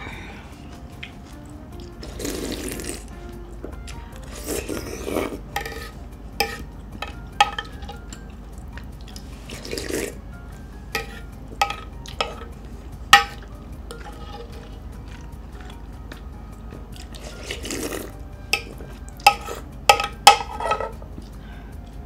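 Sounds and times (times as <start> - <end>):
faint background music: 0.0 - 22.0
noodles slurped: 1.8 - 3.1, 4.2 - 5.4, 9.0 - 10.2, 17.0 - 18.2.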